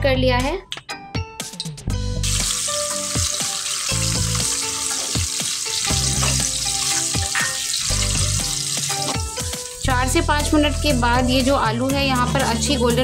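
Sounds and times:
soft background music: 0.0 - 13.0
potatoes sizzling in hot oil: 2.2 - 10.3.

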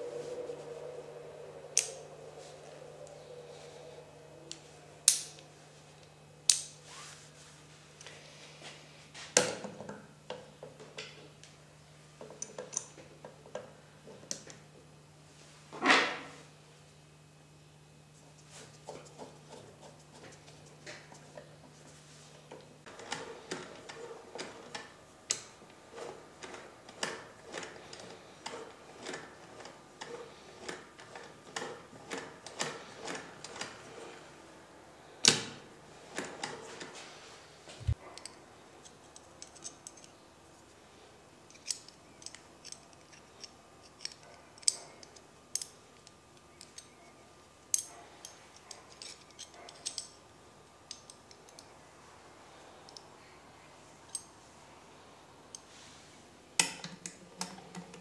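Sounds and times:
sewing machine parts clicking: 22.9 - 33.8.

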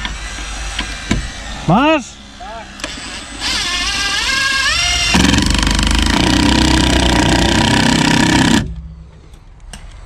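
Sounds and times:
power tool hammering: 2.8 - 8.8.

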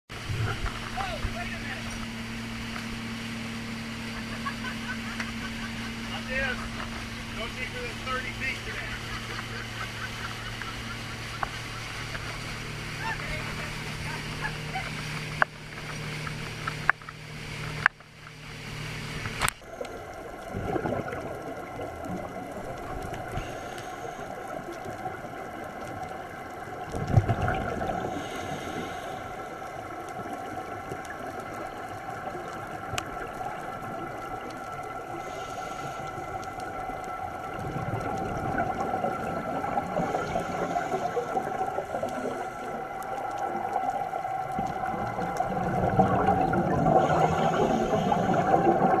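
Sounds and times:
boat engine running: 0.1 - 25.6
underwater bubbles gurgling: 0.1 - 49.0
underwater droning tones: 0.1 - 49.0
spray hissing off hull: 47.0 - 49.0.

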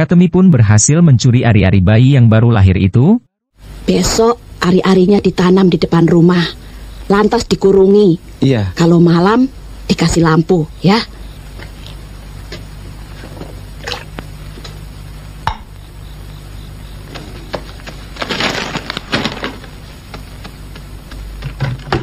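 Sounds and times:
low film soundtrack hum: 0.2 - 22.0
rustling hiss: 3.6 - 22.0
household items clattering: 17.2 - 19.8.

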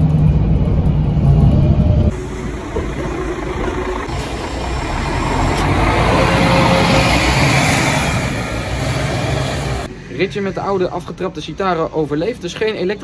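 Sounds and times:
bus engine pulling away: 0.0 - 9.9.

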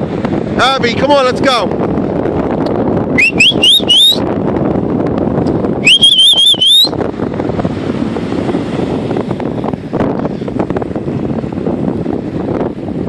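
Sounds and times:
surf: 0.0 - 13.0
wind noise: 0.0 - 13.0
person whistling: 3.2 - 4.2, 5.8 - 7.0.

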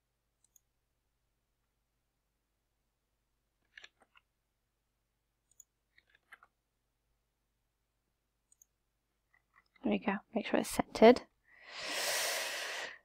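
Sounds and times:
computer mouse clicks: 0.4 - 0.7, 5.4 - 6.5, 8.5 - 9.8.

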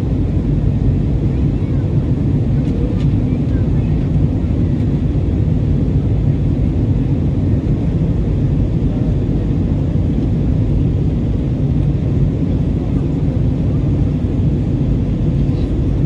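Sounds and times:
airplane cabin engine rumble: 0.0 - 16.0.

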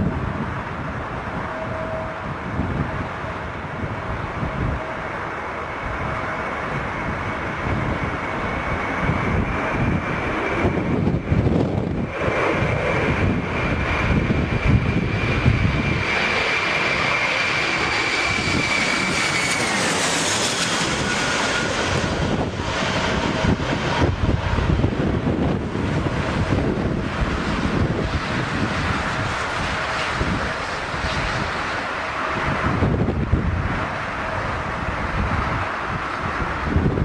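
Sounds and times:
jet engines whining overhead: 0.0 - 37.0
wind buffeting microphone: 0.0 - 37.0.

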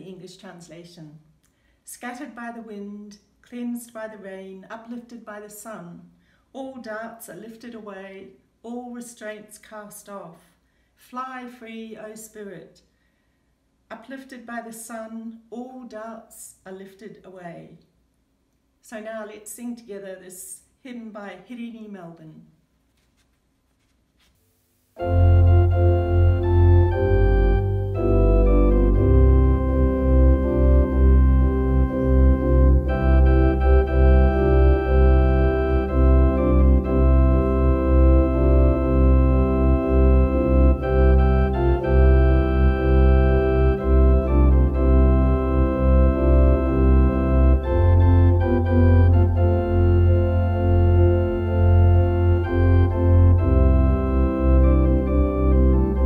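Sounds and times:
organ playing a hymn: 25.0 - 56.0.

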